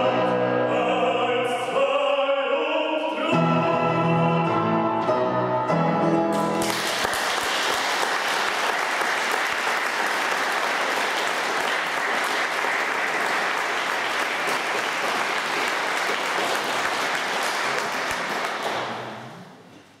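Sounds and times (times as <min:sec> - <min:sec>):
audience applauding: 0:06.4 - 0:19.4.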